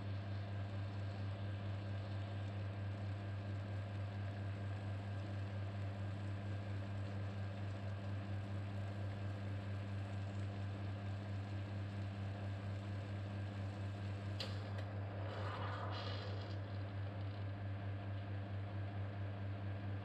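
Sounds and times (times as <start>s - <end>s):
espresso machine pump humming: 0.0s - 17.7s.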